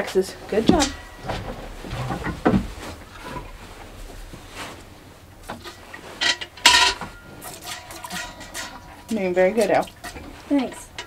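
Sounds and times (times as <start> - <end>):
milk squirting into steel bucket: 6.9 - 10.9.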